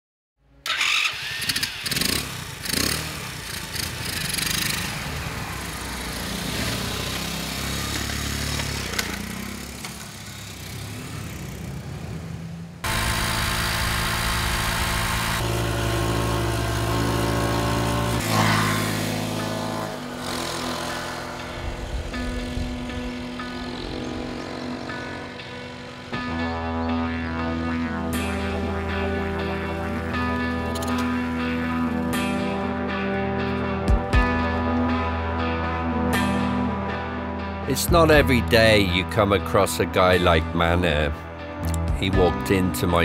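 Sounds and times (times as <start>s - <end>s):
motorcycle engine revving: 0.7s - 34.8s
steady engine drone: 1.1s - 38.5s.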